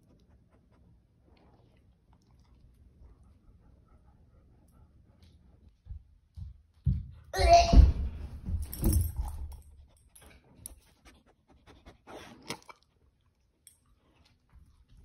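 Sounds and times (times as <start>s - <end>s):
dog panting: 0.0s - 5.8s, 9.7s - 12.5s.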